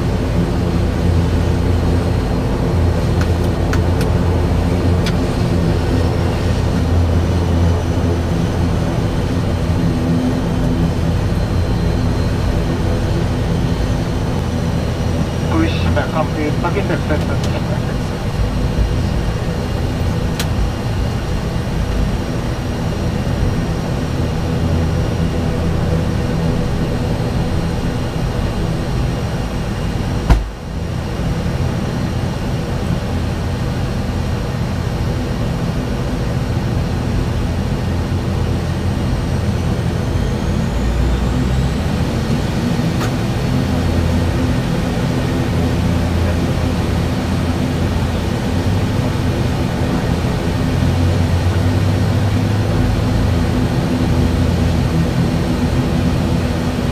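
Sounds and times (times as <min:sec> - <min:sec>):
turboprop engines idling: 0:00.0 - 0:56.9
sharp knock: 0:30.3 - 0:30.6.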